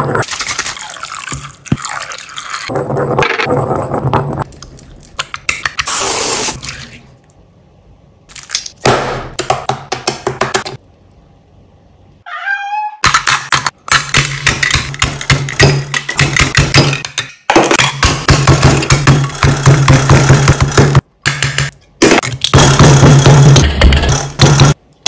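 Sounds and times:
liquid pouring: 0.3 - 2.7.

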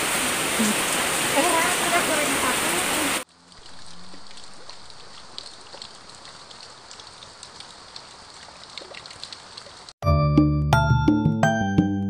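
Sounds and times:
rain drops splashing into water: 0.0 - 10.0
soft rain patter: 0.0 - 10.0.

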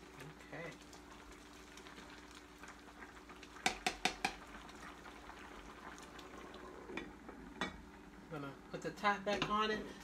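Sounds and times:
ladle knocking against pan: 3.6 - 4.4.

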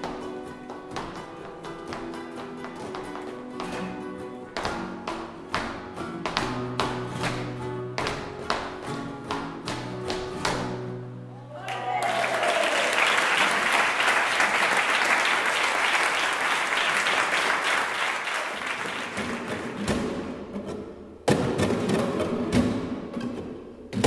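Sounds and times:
flamenco guitar strummed chords: 0.0 - 11.3, 18.8 - 24.0
audience applause: 11.6 - 19.8.

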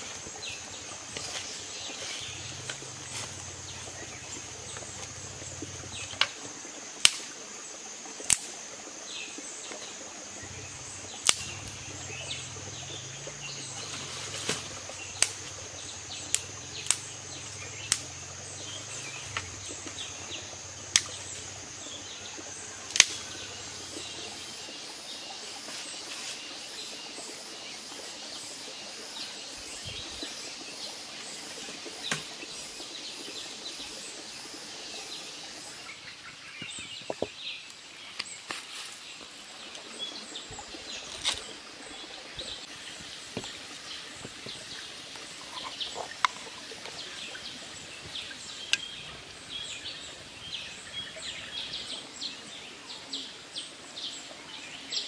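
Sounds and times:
dry twigs snapping: 8.3 - 8.5, 11.2 - 11.9, 13.9 - 15.6, 16.2 - 18.2, 22.9 - 23.3
bird chirps: 44.5 - 51.8.

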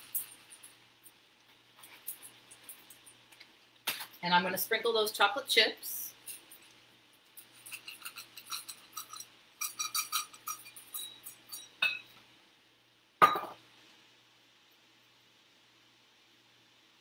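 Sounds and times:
chocolate chips rattling in metal cup: 7.4 - 11.6.

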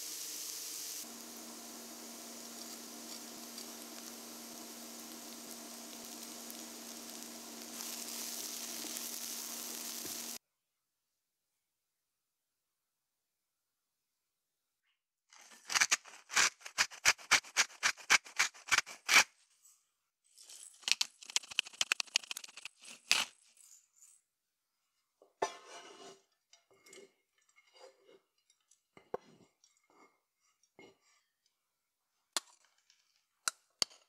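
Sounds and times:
scraping strokes: 15.4 - 19.3.

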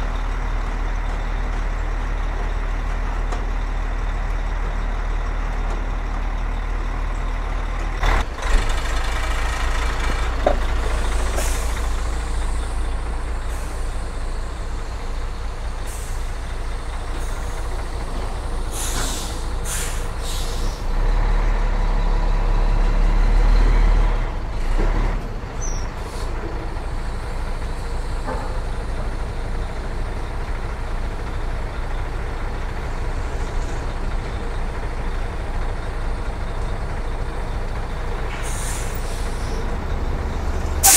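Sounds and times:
diesel truck engine running: 0.0 - 40.9
air brake hisses: 11.1 - 12.9, 15.8 - 16.3, 18.4 - 20.9, 38.3 - 39.6, 40.7 - 40.9.

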